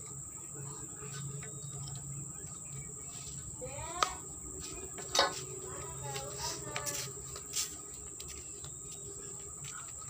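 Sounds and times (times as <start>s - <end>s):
insects trilling: 0.0s - 10.0s.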